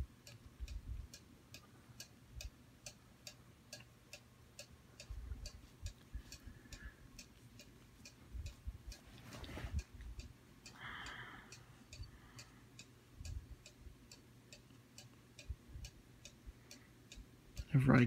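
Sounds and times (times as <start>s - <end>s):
soft low rumbles: 0.0s - 1.2s, 4.6s - 10.8s
faint even ticking: 0.0s - 18.0s
low steady hum: 0.0s - 18.0s.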